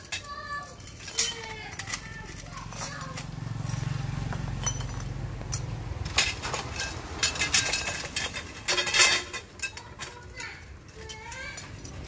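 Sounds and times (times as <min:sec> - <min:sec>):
metal parts clinking: 0:00.0 - 0:03.8, 0:04.5 - 0:12.0.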